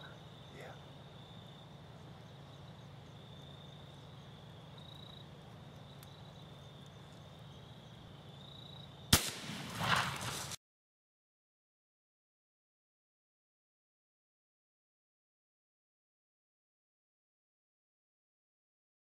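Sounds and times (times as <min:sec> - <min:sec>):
faint evening insects: 0:00.0 - 0:10.6
rifle shot with echo: 0:09.1 - 0:10.6.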